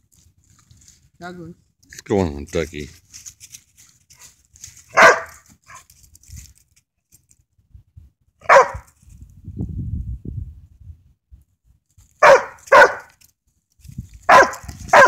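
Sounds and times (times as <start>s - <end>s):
dog barking: 4.9s - 5.9s, 8.4s - 8.9s, 12.2s - 13.1s, 14.3s - 15.0s.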